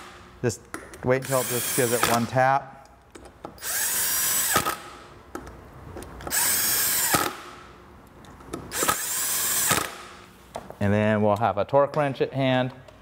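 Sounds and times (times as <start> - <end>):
cordless impact wrench: 1.2 - 2.3, 3.6 - 5.1, 6.2 - 7.7, 8.7 - 10.2.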